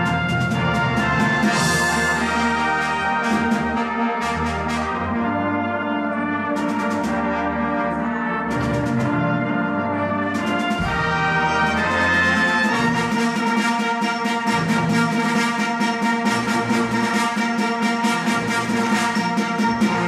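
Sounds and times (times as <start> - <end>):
percussion hits: 0.0 - 5.1, 10.4 - 20.0
brass band playing: 0.0 - 20.0.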